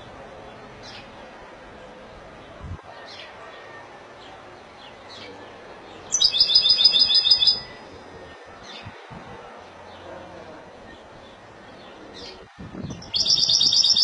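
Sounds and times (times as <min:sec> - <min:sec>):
goldfinch singing: 0:06.1 - 0:07.9, 0:13.0 - 0:14.0.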